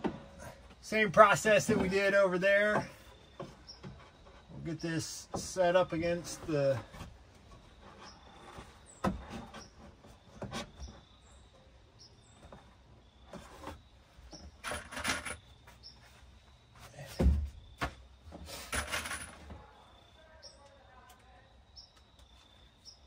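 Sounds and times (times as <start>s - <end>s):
wood rubbing: 0.0s - 11.2s, 12.4s - 17.5s.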